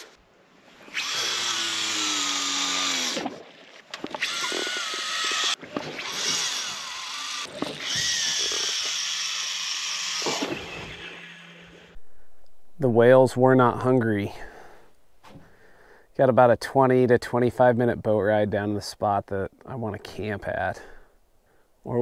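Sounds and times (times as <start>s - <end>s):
fishing reel whirring: 0.8s - 3.4s, 4.1s - 12.3s.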